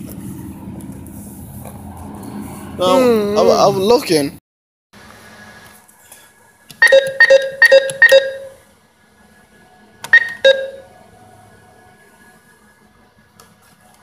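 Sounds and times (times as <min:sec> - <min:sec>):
ringing tone notes: 0:06.8 - 0:08.7, 0:10.1 - 0:10.9.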